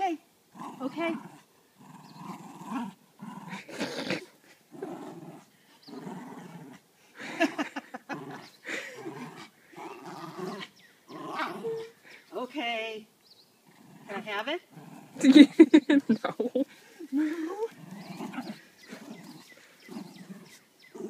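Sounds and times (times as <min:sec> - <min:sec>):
dog growling: 0:00.5 - 0:06.8, 0:08.0 - 0:12.1, 0:13.6 - 0:15.6, 0:17.2 - 0:21.0.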